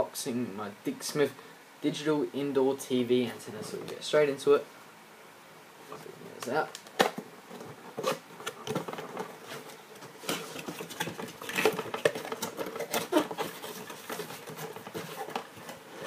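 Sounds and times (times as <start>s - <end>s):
cardboard scraping and rustling: 7.0s - 16.0s.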